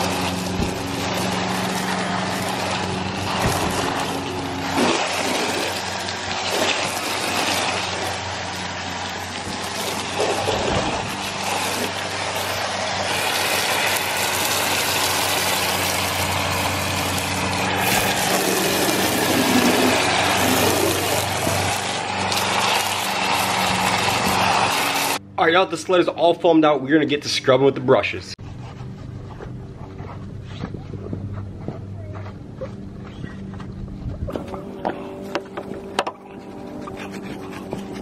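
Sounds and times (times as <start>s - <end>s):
foam spray hissing on plastic: 0.0s - 25.2s
steady engine hum: 0.0s - 38.0s.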